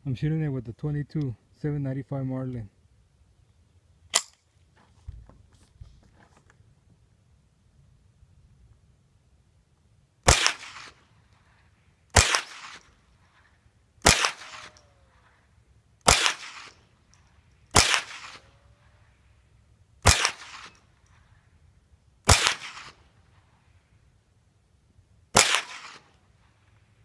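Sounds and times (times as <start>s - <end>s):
rifle shots with echo: 10.2s - 11.0s, 12.1s - 12.9s, 14.0s - 15.2s, 16.0s - 16.8s, 17.7s - 18.6s, 20.0s - 20.8s, 22.3s - 23.0s, 25.3s - 26.2s.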